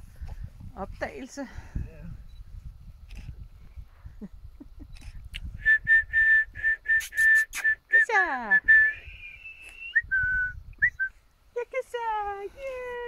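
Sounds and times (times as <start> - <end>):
sharp clicks: 4.8 - 5.5
person whistling: 5.6 - 11.1.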